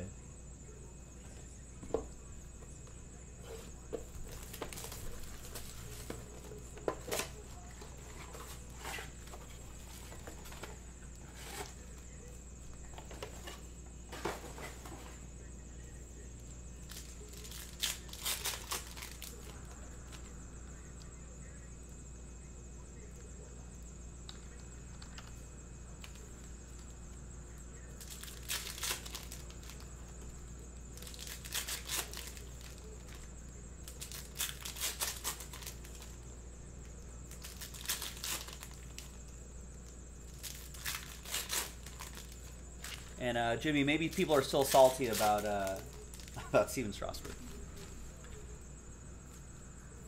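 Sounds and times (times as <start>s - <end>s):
foil wrappers tearing and crinkling: 16.8s - 20.2s, 28.0s - 29.9s, 31.0s - 36.2s, 37.3s - 39.2s, 40.2s - 47.6s.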